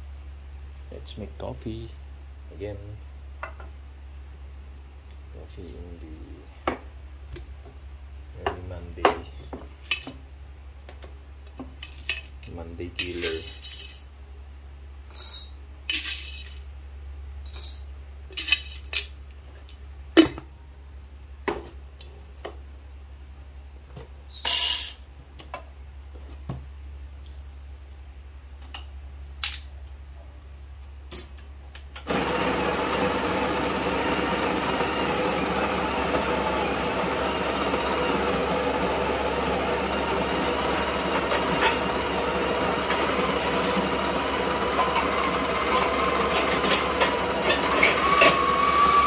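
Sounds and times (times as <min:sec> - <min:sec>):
espresso machine whirring: 0:32.1 - 0:49.0.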